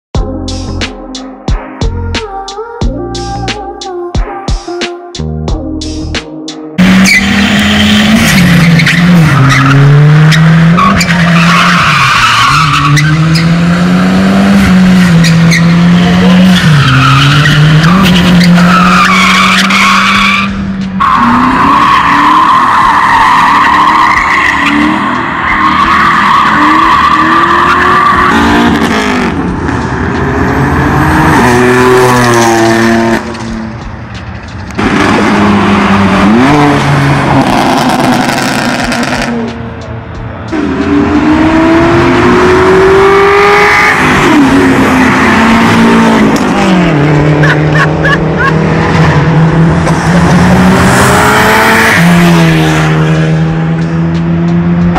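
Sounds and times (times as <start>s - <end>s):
tires squealing: 6.8s - 39.7s, 40.3s - 54.9s
car engines at high revs: 6.8s - 54.9s
engine revving up: 12.9s - 19.8s, 26.4s - 33.7s, 34.7s - 39.6s, 40.5s - 54.9s.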